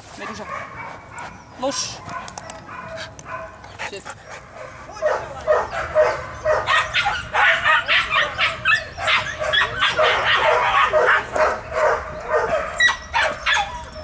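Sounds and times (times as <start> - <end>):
dog barking rapidly: 0.2 - 3.5, 5.0 - 13.7
dog yipping: 4.9 - 14.0.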